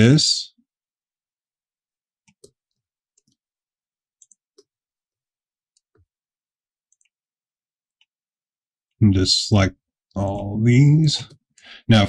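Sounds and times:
computer mouse clicks: 0:02.3 - 0:03.4, 0:04.2 - 0:04.7, 0:06.9 - 0:07.2.

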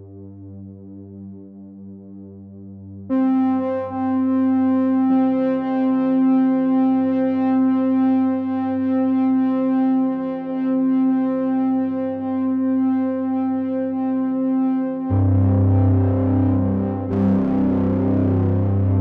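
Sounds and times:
synthesizer chords: 0:15.1 - 0:19.0.

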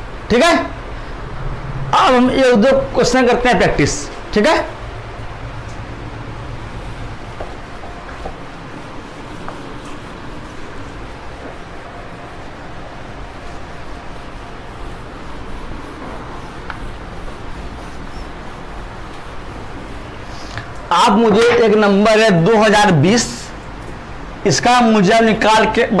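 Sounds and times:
low steady hum: 0:00.0 - 0:24.5
duster rubbing whiteboard: 0:07.2 - 0:20.6.

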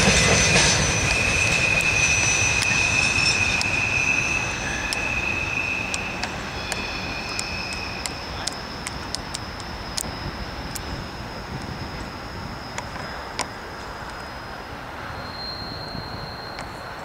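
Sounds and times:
high-pitched wheel squeal: 0:00.0 - 0:08.8, 0:15.0 - 0:17.0
freight train rumbling: 0:00.0 - 0:17.0
sharp clicks: 0:05.9 - 0:10.1.

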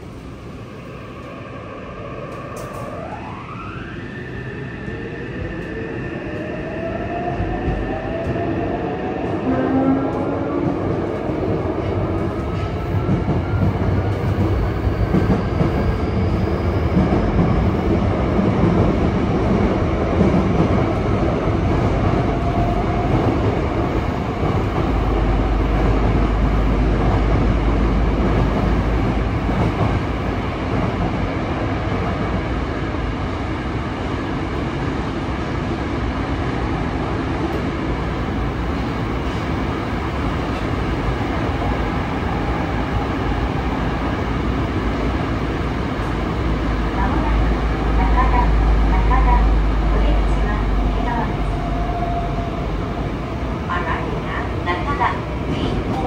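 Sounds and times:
wheels rumbling on rail: 0:09.1 - 0:35.4.

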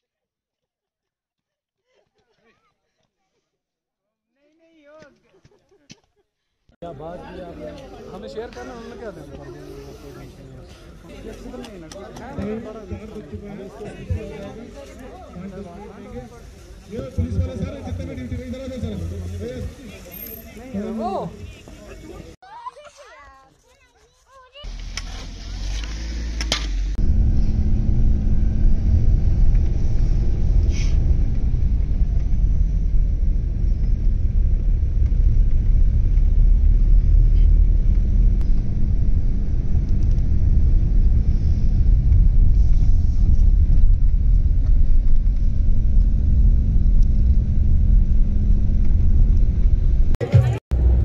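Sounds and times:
car cabin road and engine rumble: 0:24.7 - 0:51.0.

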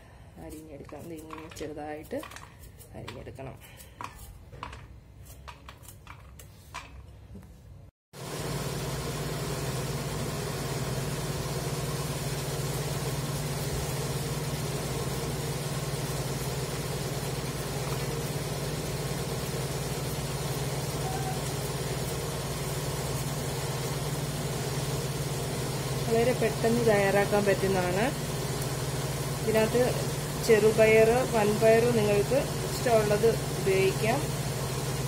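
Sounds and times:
loud steady hum: 0:08.2 - 0:35.0.

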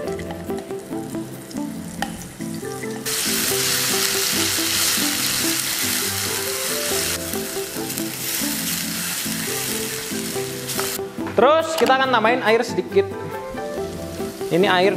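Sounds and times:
background music: 0:00.0 - 0:14.9
spice paste sizzling in oil: 0:00.5 - 0:11.0, 0:13.8 - 0:14.9.

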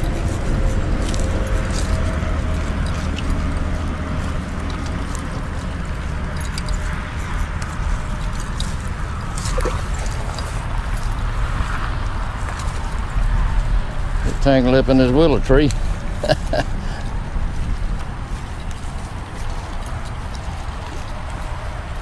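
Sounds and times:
low rumble of highway traffic: 0:00.0 - 0:22.0
faint water splashing: 0:09.3 - 0:10.7.

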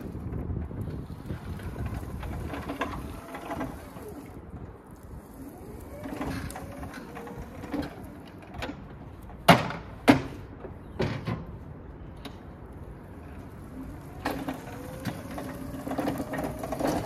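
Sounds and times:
electric stacker driving: 0:00.0 - 0:08.9, 0:13.2 - 0:17.0.

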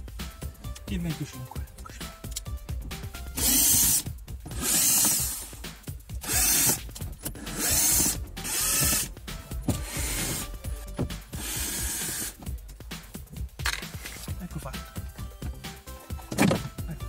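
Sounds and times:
cordless drill spinning: 0:03.3 - 0:05.6, 0:06.2 - 0:10.7, 0:11.3 - 0:12.4
clicks and knocks of tool and plastic: 0:16.2 - 0:16.8.

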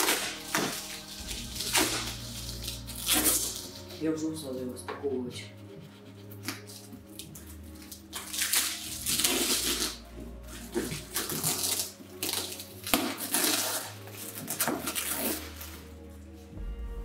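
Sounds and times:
plastic bags crinkling: 0:00.0 - 0:04.0, 0:07.2 - 0:15.9
quiet background music: 0:00.0 - 0:17.0.

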